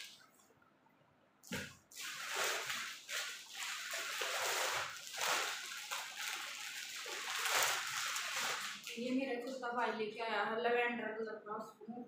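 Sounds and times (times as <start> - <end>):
plastic packaging crinkling: 0.0 - 0.3, 1.5 - 9.7.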